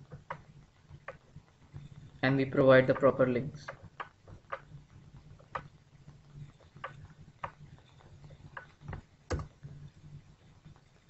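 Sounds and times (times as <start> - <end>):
computer mouse clicks: 0.1 - 1.2, 2.9 - 4.7, 6.6 - 9.6.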